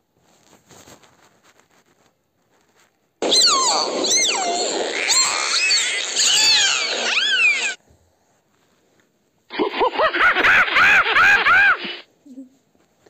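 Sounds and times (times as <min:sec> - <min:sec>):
dolphin whistling: 0:03.2 - 0:07.8
monkey calls: 0:03.2 - 0:07.8.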